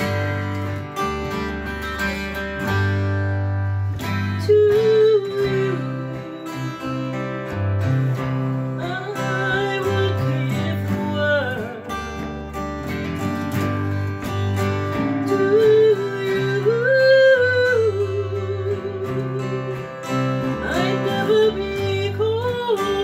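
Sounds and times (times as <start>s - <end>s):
acoustic guitars strumming: 0.0s - 23.0s
woman singing: 4.0s - 12.3s, 14.9s - 23.0s.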